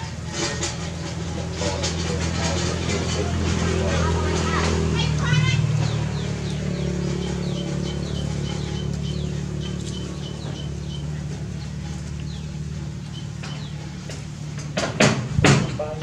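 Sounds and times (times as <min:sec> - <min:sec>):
bird chirping: 0:05.3 - 0:14.4.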